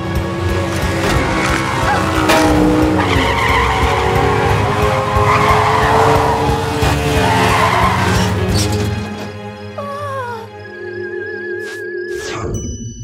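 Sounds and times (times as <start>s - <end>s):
buggy engine drone: 0.0s - 9.8s
tyres skidding squeal: 1.0s - 9.4s.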